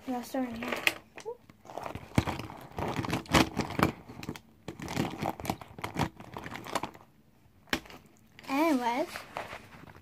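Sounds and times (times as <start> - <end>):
crinkly pouch rustling: 1.6 - 7.1.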